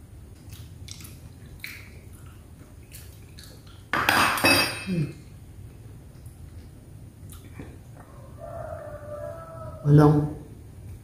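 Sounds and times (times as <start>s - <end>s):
fork clinking on ceramic plate: 4.0s - 5.1s.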